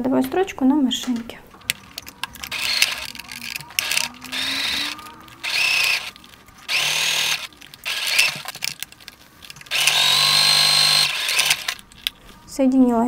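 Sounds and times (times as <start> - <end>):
sewing machine stitching: 1.7 - 8.9, 9.6 - 12.1.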